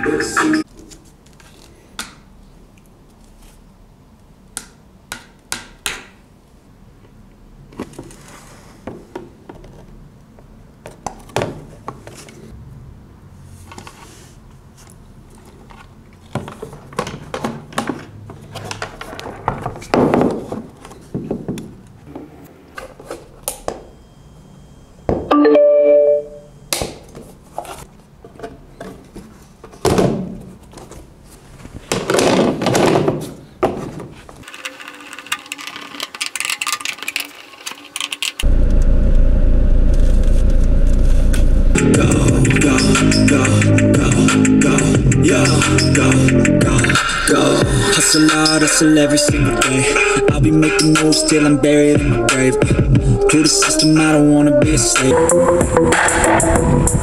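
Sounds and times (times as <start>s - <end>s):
plastic parts clicking on workbench: 34.4s - 38.4s.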